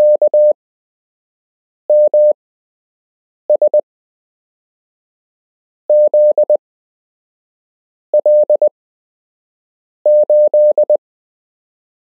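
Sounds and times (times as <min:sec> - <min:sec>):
morse code beeps: 0:00.0 - 0:00.6, 0:01.9 - 0:02.4, 0:05.9 - 0:06.6, 0:08.2 - 0:08.7, 0:10.1 - 0:11.0.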